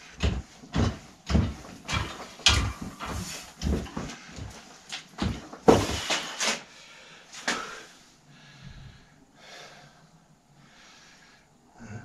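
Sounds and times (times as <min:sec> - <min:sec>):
sharp knocks and clatters: 0:00.0 - 0:06.4.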